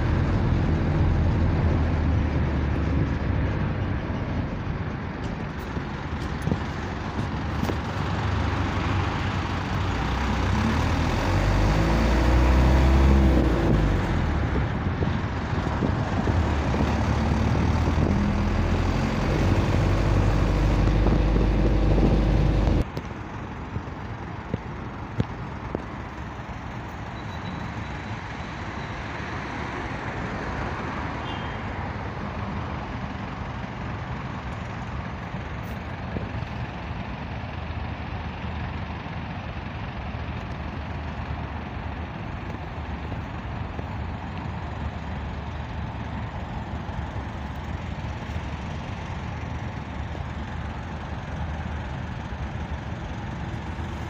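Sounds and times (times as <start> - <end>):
car road and engine noise: 0.0 - 54.0
strong low hum: 13.4 - 22.8.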